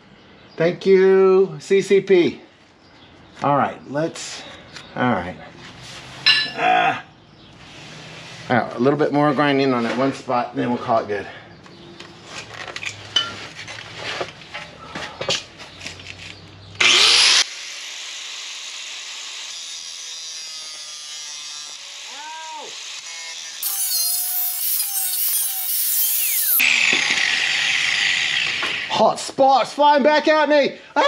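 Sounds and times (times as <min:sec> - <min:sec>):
grinder grinding metal: 0:16.8 - 0:29.0.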